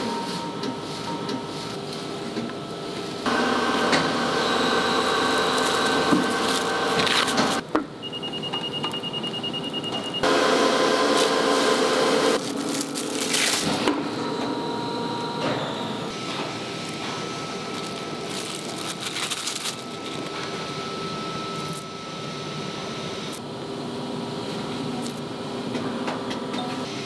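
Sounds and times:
factory machine drone: 0:00.0 - 0:27.0
machine hum with steady tones: 0:00.0 - 0:27.0
plastic film crinkling: 0:05.1 - 0:07.6, 0:12.4 - 0:13.9, 0:16.8 - 0:20.6.

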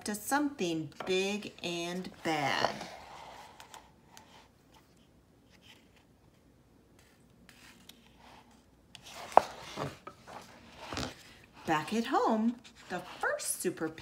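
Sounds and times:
faint rustles of book handling: 0:01.9 - 0:14.0
book page turning: 0:04.7 - 0:13.2.

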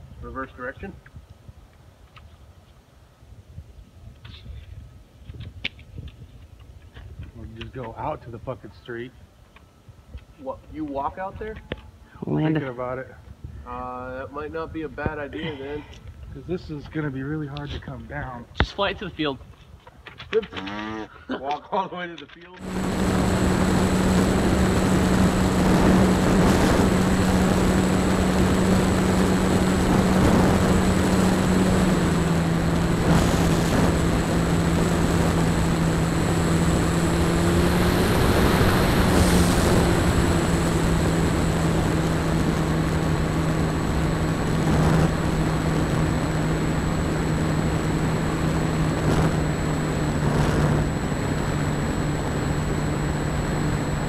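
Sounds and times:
model plane motor droning: 0:22.6 - 0:54.0
wind rushing: 0:22.6 - 0:54.0.

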